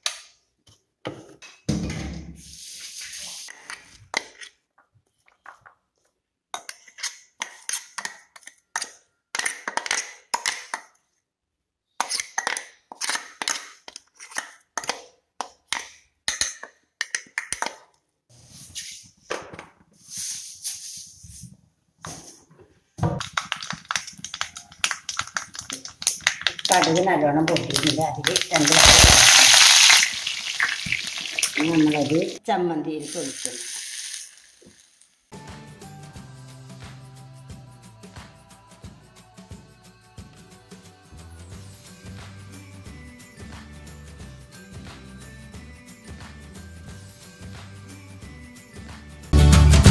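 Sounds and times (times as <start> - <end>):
metal spoon scraping steel jar: 6.6 - 10.0.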